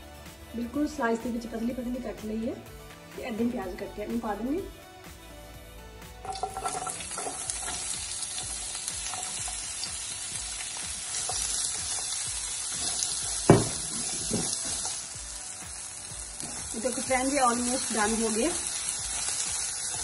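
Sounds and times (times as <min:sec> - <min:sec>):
vegetables sizzling in a frying pan: 0:06.2 - 0:20.0
sharp knock: 0:13.5 - 0:14.5.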